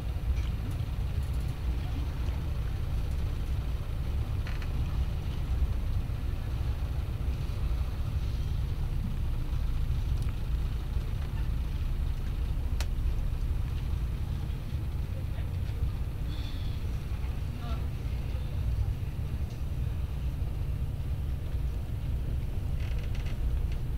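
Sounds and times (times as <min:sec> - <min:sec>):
low rumble of ship engines: 0:00.0 - 0:23.9
faint click: 0:12.8 - 0:13.0.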